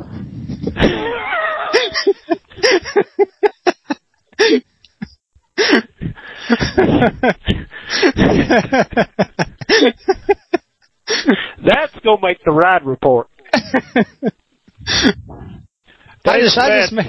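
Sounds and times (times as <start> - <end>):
people laughing: 0.8 - 4.6, 6.4 - 11.4, 13.5 - 15.2.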